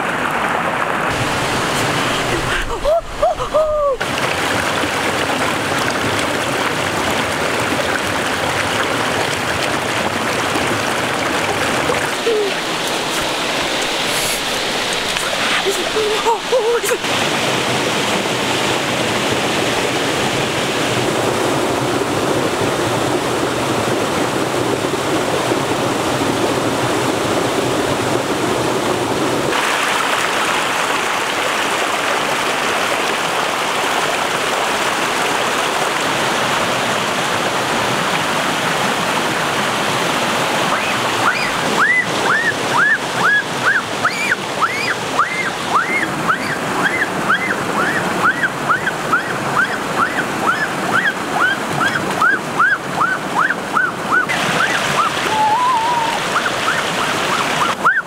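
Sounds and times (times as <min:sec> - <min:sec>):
stream water rushing over rocks: 0:00.0 - 0:58.0.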